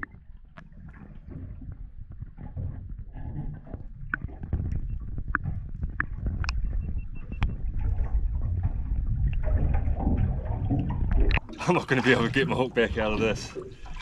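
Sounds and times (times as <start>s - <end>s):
sharp knocks and clicks: 0.0s - 11.5s
steady low rumble: 0.0s - 11.7s.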